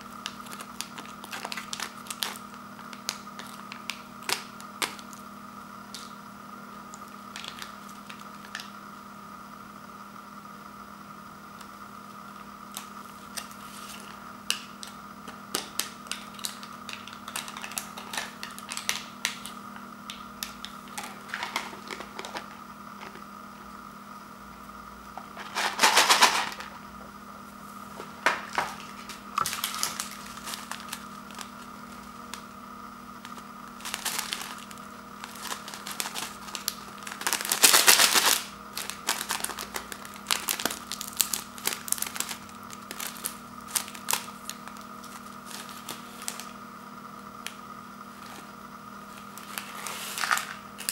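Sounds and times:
steady background hum: 0.0s - 50.9s
seasoning packets crinkling: 0.2s - 5.2s, 7.3s - 8.7s, 12.8s - 19.6s, 28.5s - 32.5s, 33.2s - 46.6s, 49.1s - 50.9s.

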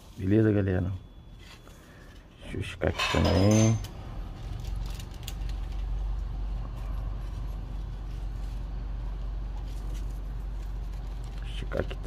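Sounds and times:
steady low rumble: 3.8s - 12.0s
tissue paper crinkling: 4.2s - 12.0s.

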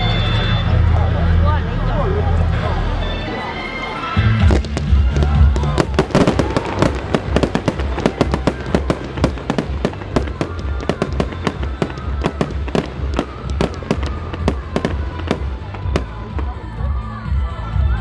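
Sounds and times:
fireworks popping and crackling: 4.4s - 17.0s.

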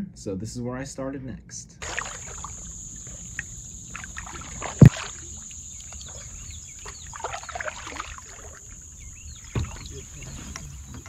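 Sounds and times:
high-pitched insect drone: 1.8s - 10.2s
kayak paddle strokes dripping: 1.8s - 11.0s.

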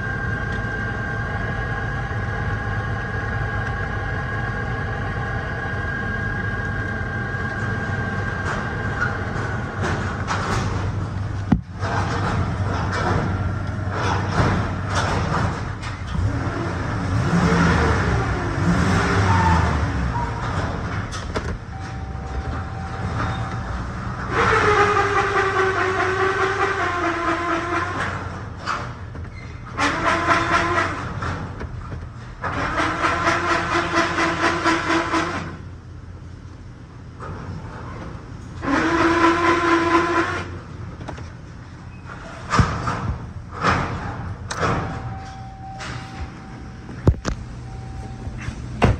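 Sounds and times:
loud steady tone: 21.6s - 28.0s, 44.7s - 48.9s.

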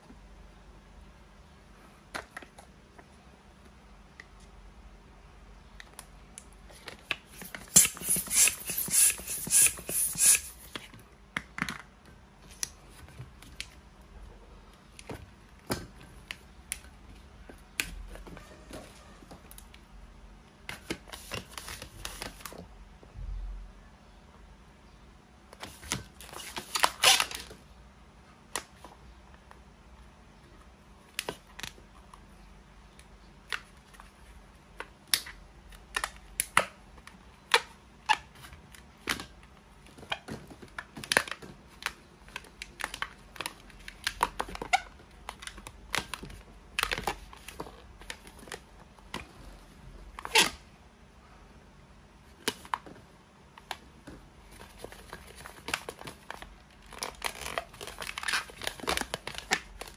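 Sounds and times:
balloon squeaks: 7.5s - 10.6s, 26.8s - 27.4s, 50.2s - 50.6s.

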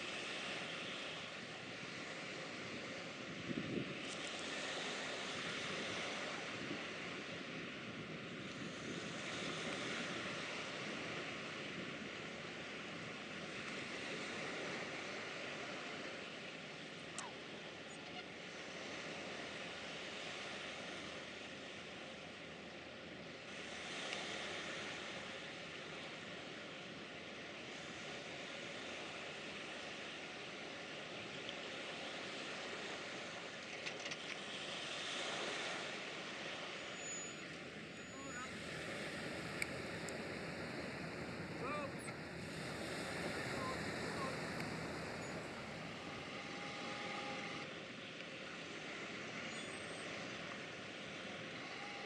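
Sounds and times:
river water rushing: 0.0s - 7.6s, 34.2s - 52.0s
faint steady hum: 0.0s - 52.0s
wind: 0.0s - 52.0s
faint clicks: 33.6s - 34.4s, 39.5s - 40.2s.

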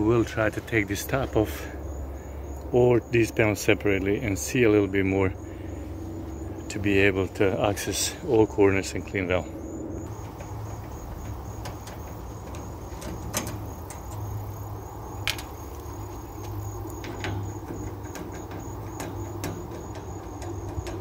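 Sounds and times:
insects chirping: 0.0s - 21.0s
steady low hum: 0.0s - 21.0s
light metal clicks: 10.1s - 21.0s.

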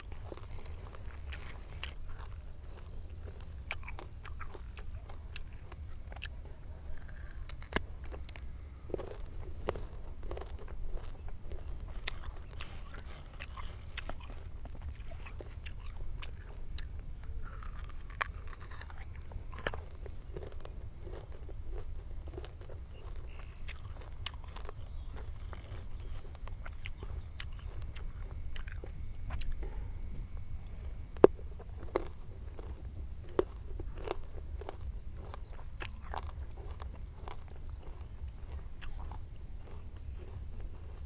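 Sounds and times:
crunching chewing of fruit: 0.0s - 41.0s.

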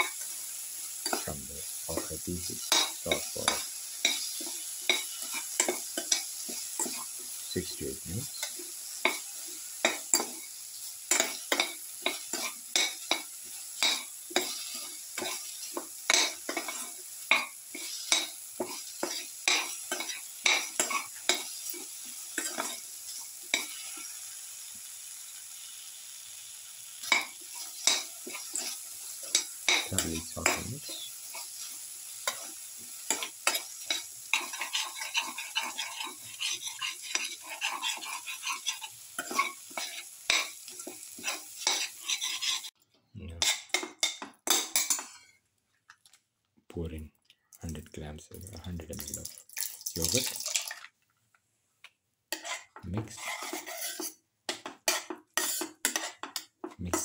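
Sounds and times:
vegetables sizzling in a pan: 0.0s - 42.8s, 48.9s - 50.9s, 52.2s - 57.0s
metal spatula scraping a pan: 2.5s - 7.3s, 8.3s - 24.3s, 27.0s - 42.8s, 43.4s - 45.4s, 52.3s - 57.0s.

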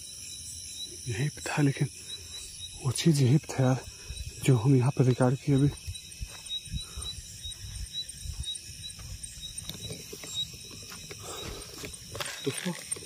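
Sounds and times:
insects chirping: 0.0s - 13.0s
footsteps through grass: 5.6s - 6.6s.

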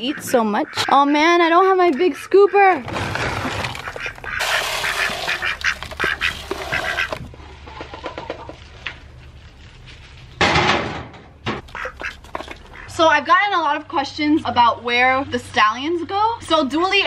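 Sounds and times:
hens clucking: 0.0s - 8.8s, 11.6s - 13.3s
pellets poured into feeder: 2.9s - 7.2s
plastic bag crinkling: 2.9s - 7.3s
scoop digging into feed pellets: 2.9s - 7.3s.

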